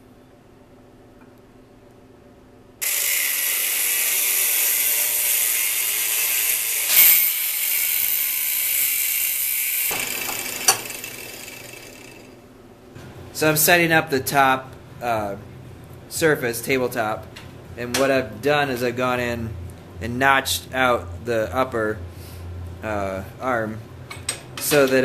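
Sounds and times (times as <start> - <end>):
angle grinder grinding steel: 2.8 - 12.4.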